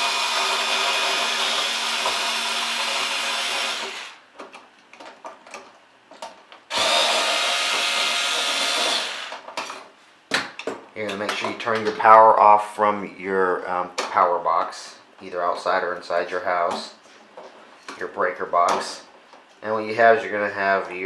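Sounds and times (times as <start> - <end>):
cordless screwdriver whining: 6.7 - 9.4.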